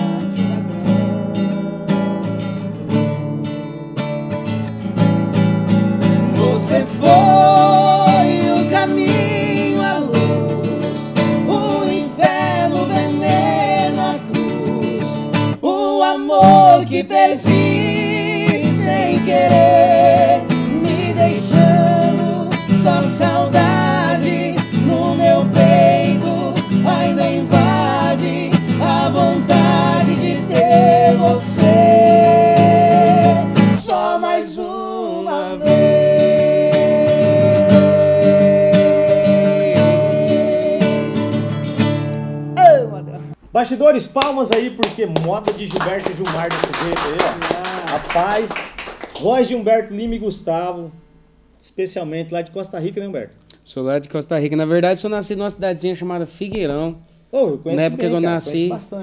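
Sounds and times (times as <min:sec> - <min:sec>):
strummed acoustic guitar: 0:00.0 - 0:15.6, 0:16.3 - 0:43.4
men singing in harmony: 0:06.1 - 0:41.4.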